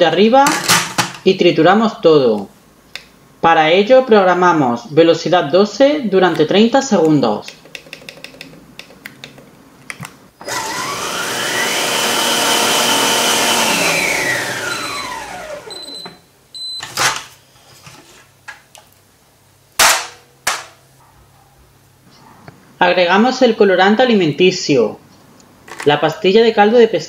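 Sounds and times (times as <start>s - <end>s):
sharp clicks: 6.3s - 10.2s
food processor motor whine: 10.4s - 16.1s.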